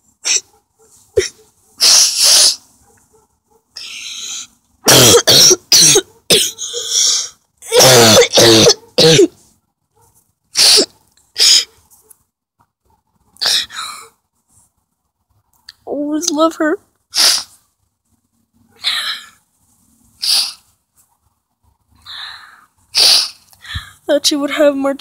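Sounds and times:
person sniffing: 0.2s - 0.5s, 1.2s - 2.7s, 6.5s - 7.4s, 10.6s - 11.8s, 13.4s - 14.1s, 17.1s - 17.6s, 20.2s - 20.7s, 22.9s - 24.0s
person coughing: 1.2s - 1.4s, 4.9s - 6.8s, 7.7s - 9.4s.

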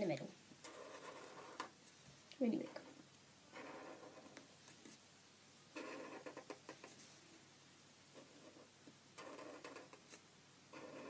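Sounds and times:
felt-tip pen scratching paper: 0.6s - 1.7s, 8.2s - 11.0s.

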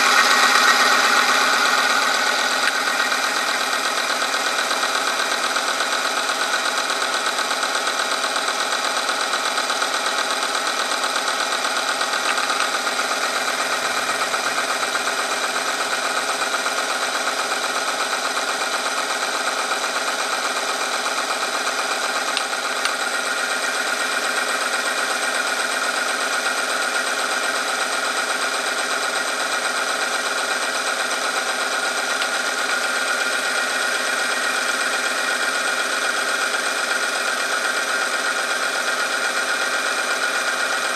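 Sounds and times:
electric motor whine: 0.0s - 8.0s, 9.0s - 27.9s.

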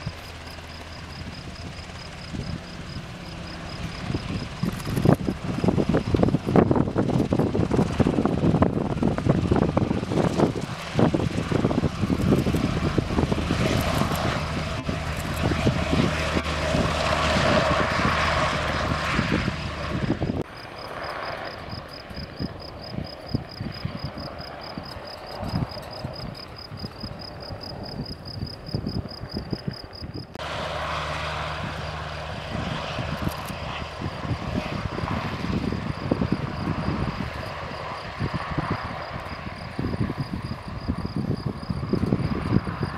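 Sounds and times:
insect trill: 0.0s - 8.0s, 20.5s - 30.4s, 31.2s - 42.9s
distant helicopter: 0.0s - 42.9s
helicopter rotor noise: 0.0s - 42.9s.

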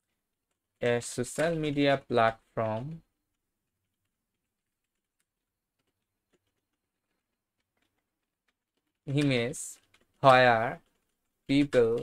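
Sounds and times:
computer keyboard typing clicks: 3.8s - 12.0s.

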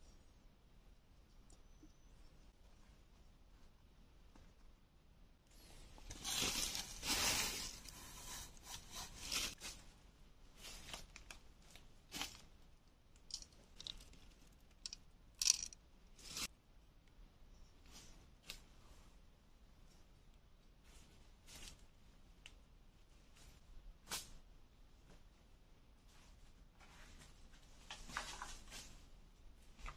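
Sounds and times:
dry leaves rustling: 6.2s - 7.8s
twigs crackling and snapping: 13.2s - 15.8s.

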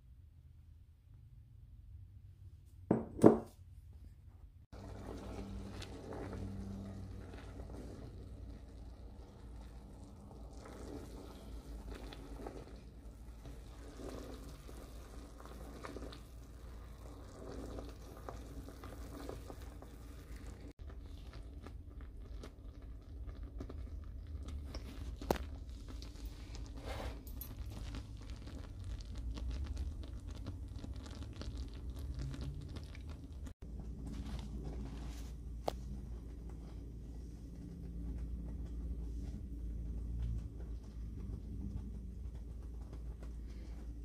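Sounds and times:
jelly bubbling and crackling: 4.7s - 44.0s
low hum: 32.7s - 44.0s.

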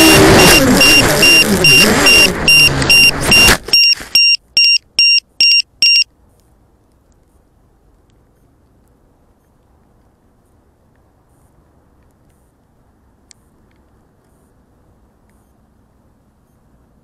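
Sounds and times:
drone motors whining: 0.0s - 3.7s
shrill electronic beeps: 0.0s - 6.0s.

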